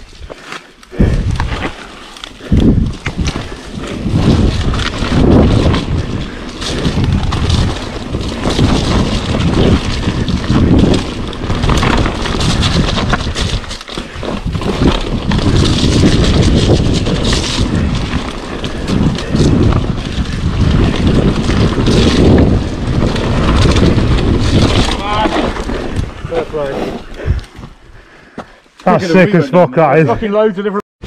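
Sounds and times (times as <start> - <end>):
bike rattling over bumps: 0.0 - 28.0
bike tyres rolling on dirt: 0.0 - 29.0
wind buffeting microphone: 0.9 - 1.8, 2.4 - 28.2.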